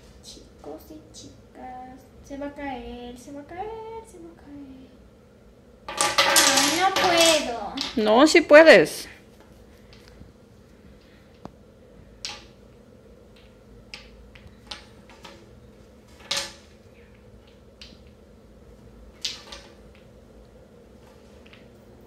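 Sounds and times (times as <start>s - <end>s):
wooden blocks clacking: 5.9s - 8.1s, 12.2s - 12.6s, 13.3s - 15.5s, 16.1s - 18.2s, 19.2s - 20.1s.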